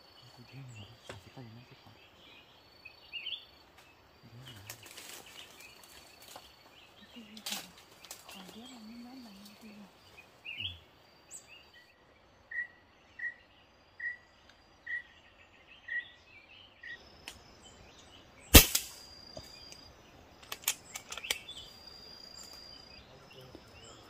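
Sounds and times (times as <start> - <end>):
bird call notes: 10.5 - 20.0
loud gunshot: 18.5 - 19.0
light clicks: 20.4 - 21.6.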